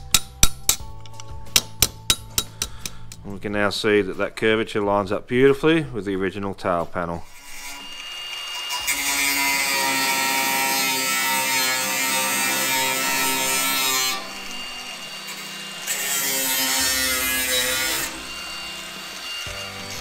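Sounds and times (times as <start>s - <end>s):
background music: 0.0s - 7.4s, 8.7s - 20.0s
angle grinder cutting steel: 7.2s - 20.0s.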